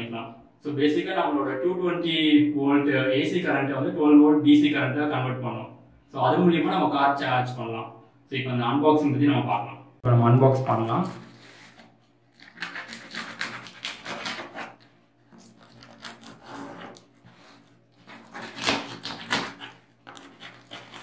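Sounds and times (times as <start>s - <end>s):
knife scraping and tearing cardboard: 11.0s - 21.0s.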